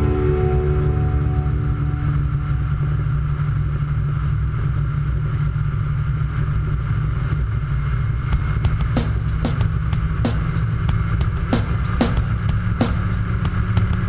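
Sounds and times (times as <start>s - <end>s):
music: 0.0s - 3.6s, 8.3s - 14.0s
light aircraft engine droning: 0.0s - 14.0s.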